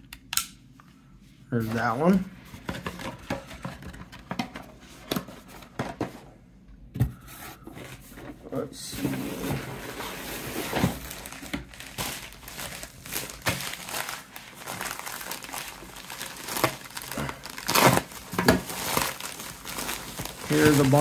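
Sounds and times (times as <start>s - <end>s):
padded mailer crinkling: 10.0s - 21.0s.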